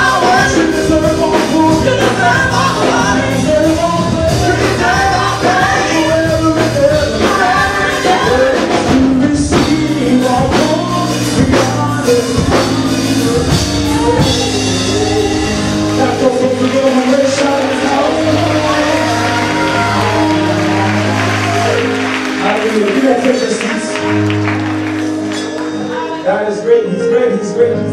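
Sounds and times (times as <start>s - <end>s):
backing vocalists singing: 0.0s - 21.6s
electric bass guitar: 0.0s - 22.1s
drum kit: 0.0s - 26.0s
lead singer: 0.0s - 27.9s.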